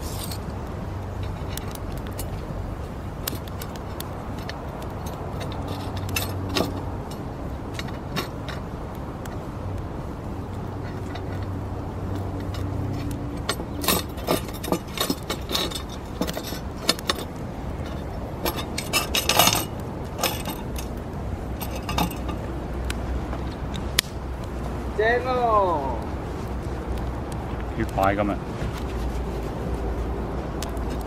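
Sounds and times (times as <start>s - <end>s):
metal rods clinking on iron: 3.3s - 8.7s, 10.8s - 21.0s, 21.6s - 22.5s.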